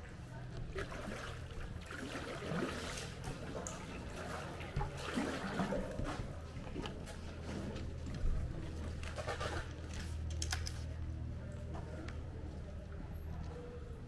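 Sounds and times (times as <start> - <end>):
water splashing around kayak: 0.7 - 6.4.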